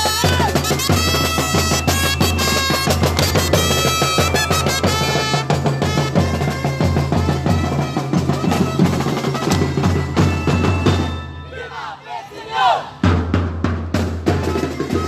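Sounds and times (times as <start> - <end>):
drum-driven dance music: 0.0 - 11.2.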